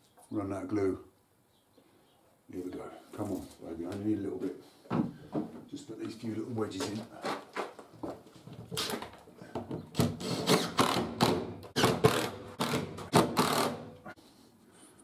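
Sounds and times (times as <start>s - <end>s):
cordless drill short bursts: 11.8s - 13.8s.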